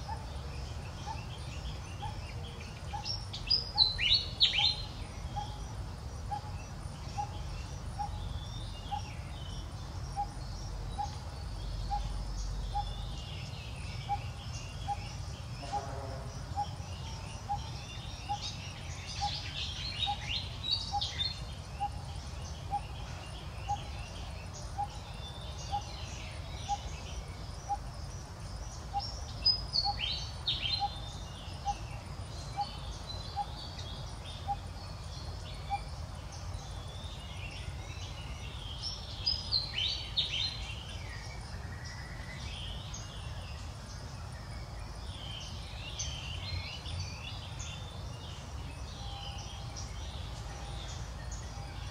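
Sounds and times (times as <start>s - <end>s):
high chirping calls: 0.0s - 27.9s.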